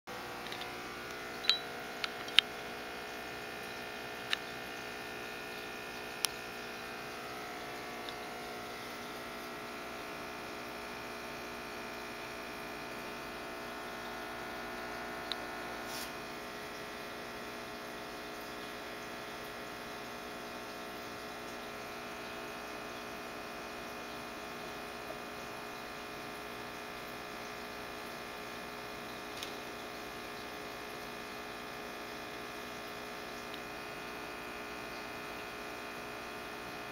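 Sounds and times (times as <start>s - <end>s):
aquarium equipment hum: 0.1s - 36.9s.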